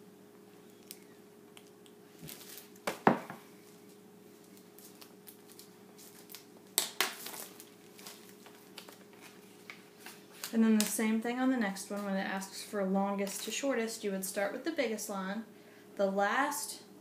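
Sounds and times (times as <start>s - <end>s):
faint steady hum: 0.0s - 17.0s
plastic sleeve rustling: 2.1s - 11.1s.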